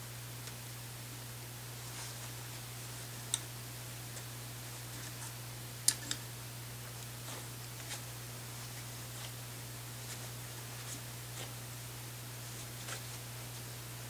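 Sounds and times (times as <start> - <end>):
steady low hum: 0.0 - 14.0
small clicks of tools handled: 5.9 - 6.2.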